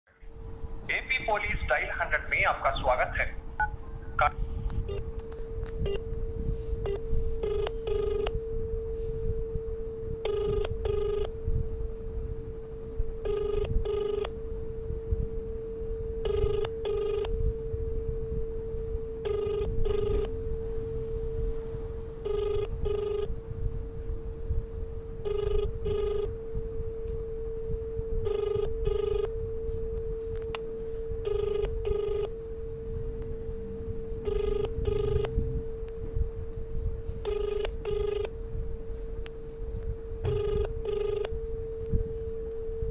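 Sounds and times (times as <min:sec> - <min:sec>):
telephone ringback tone: 0:02.8 - 0:05.1, 0:05.8 - 0:09.4, 0:10.0 - 0:11.5, 0:13.2 - 0:14.8, 0:16.1 - 0:18.1, 0:19.1 - 0:21.4, 0:22.1 - 0:23.4, 0:25.1 - 0:26.9, 0:28.1 - 0:35.8, 0:37.0 - 0:38.4, 0:40.2 - 0:42.9.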